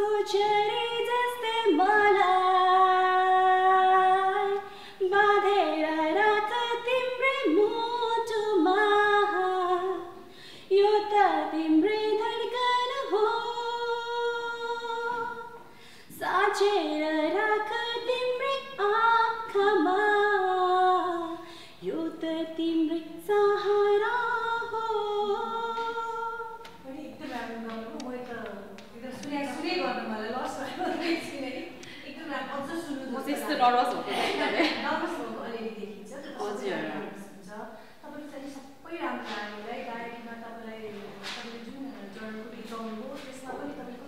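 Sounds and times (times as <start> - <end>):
woman singing unaccompanied: 0.0 - 33.6
woman breathing: 4.6 - 5.0, 10.2 - 10.7, 15.6 - 16.1, 21.4 - 21.8.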